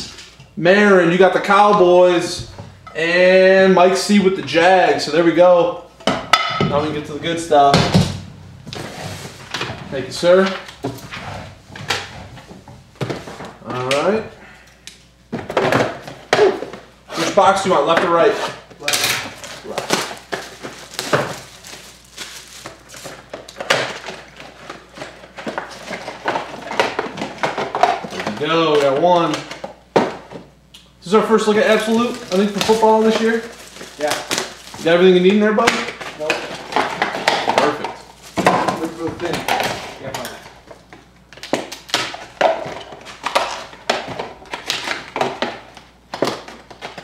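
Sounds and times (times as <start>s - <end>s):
cardboard and wrappers rustling: 7.0s - 14.2s, 18.1s - 29.6s, 31.1s - 47.0s.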